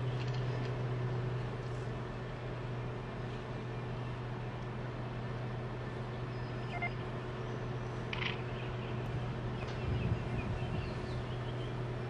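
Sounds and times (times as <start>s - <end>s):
low mechanical hum: 0.0s - 12.0s
faint high chirps: 6.4s - 7.1s
short beep: 6.7s - 7.0s.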